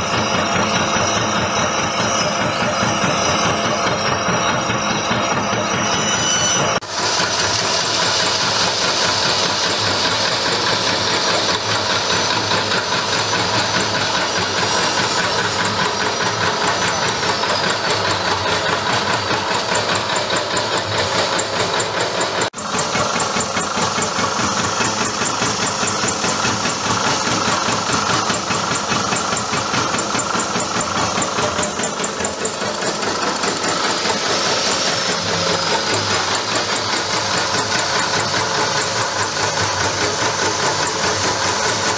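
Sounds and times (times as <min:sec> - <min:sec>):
peanut chopping machine rattling: 0:12.3 - 0:41.9.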